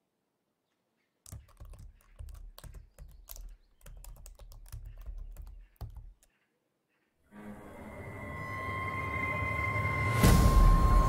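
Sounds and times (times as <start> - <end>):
laptop keyboard typing: 1.2 - 6.3.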